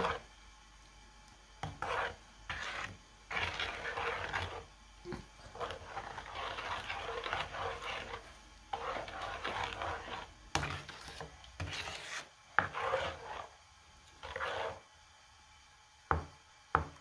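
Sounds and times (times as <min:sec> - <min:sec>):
spatula scraping a pan: 0:00.0 - 0:00.3, 0:01.6 - 0:14.8.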